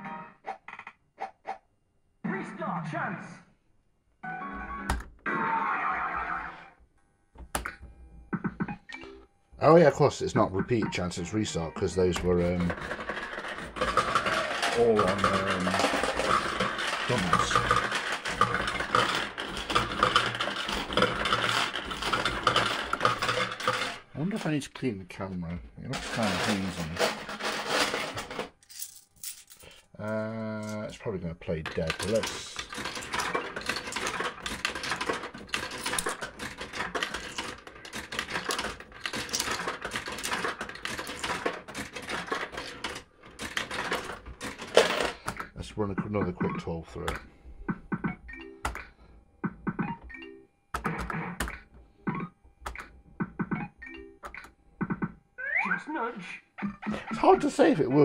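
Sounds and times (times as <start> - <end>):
fruit machine playing: 7.4 - 24.6, 31.5 - 47.2, 56.6 - 58.0.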